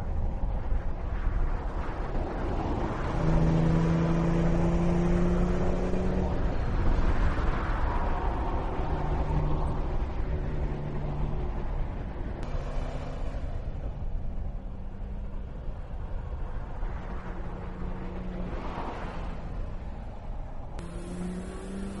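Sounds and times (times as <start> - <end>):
road noise: 0.0 - 22.0
car engine driving by at speed: 20.8 - 22.0.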